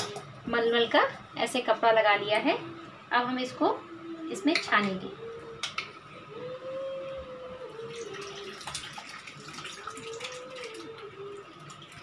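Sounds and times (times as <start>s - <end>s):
liquid pouring through strainer: 7.8s - 12.0s.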